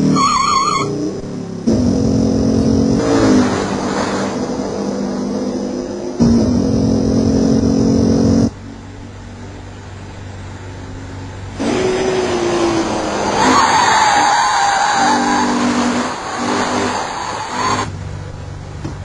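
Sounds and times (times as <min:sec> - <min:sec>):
tyre squeal: 0:00.0 - 0:00.9, 0:13.3 - 0:17.9
car engine running: 0:00.0 - 0:14.2.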